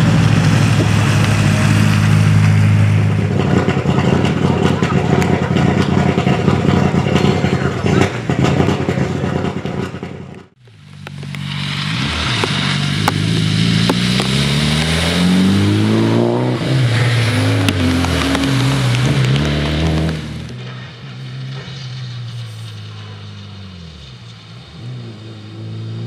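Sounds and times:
tyres hissing on wet road: 0.0s - 3.2s, 10.6s - 26.0s
rally car engine revving: 0.0s - 26.0s
sharp cracks: 9.7s - 15.2s.

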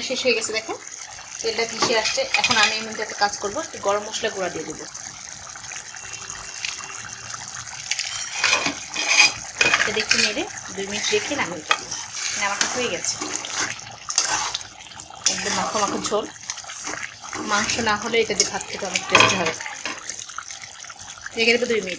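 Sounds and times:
curry bubbling: 0.0s - 21.9s
metal spatula scraping a pan: 1.7s - 3.0s, 7.9s - 20.0s
spatula clinking against pan: 1.8s - 2.8s.

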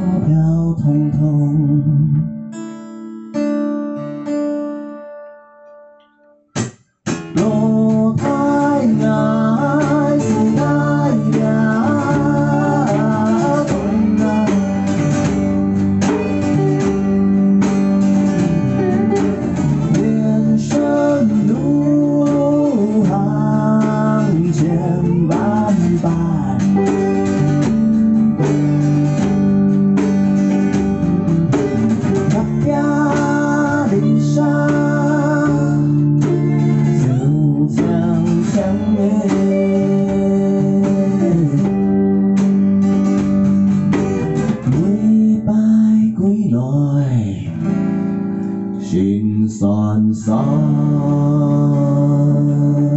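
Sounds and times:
man singing: 0.0s - 2.4s, 7.3s - 17.8s, 18.4s - 27.2s, 32.1s - 42.1s, 44.5s - 47.8s, 48.7s - 52.9s
bass guitar: 0.0s - 52.9s
electric guitar: 0.0s - 52.9s
strummed acoustic guitar: 0.0s - 52.9s.

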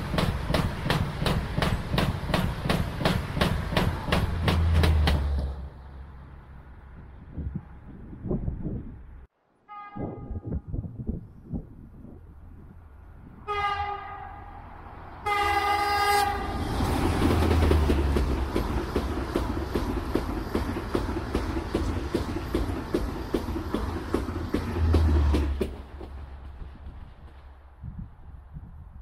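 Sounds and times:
train wheels clattering: 0.0s - 5.7s, 16.8s - 27.6s
train rushing past: 0.0s - 8.7s, 12.6s - 28.5s
train horn blasts: 9.6s - 10.7s, 13.4s - 16.6s.

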